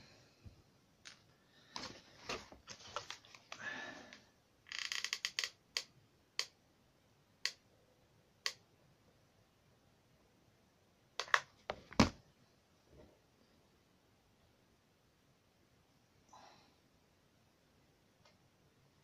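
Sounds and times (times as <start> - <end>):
card rustling: 1.8 - 3.5.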